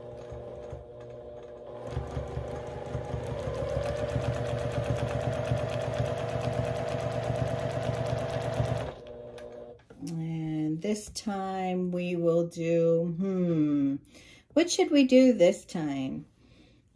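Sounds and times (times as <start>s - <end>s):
sewing machine needle ticking: 0.0s - 9.7s
sewing machine motor hum: 0.0s - 9.8s.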